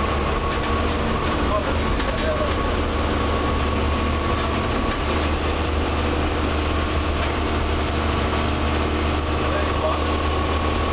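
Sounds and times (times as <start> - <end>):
bus engine humming: 0.0 - 10.9
road noise: 0.0 - 10.9.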